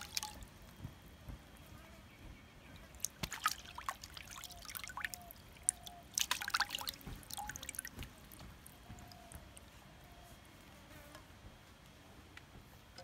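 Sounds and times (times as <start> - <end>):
water splashing and dripping: 0.0 - 0.5, 2.7 - 9.7.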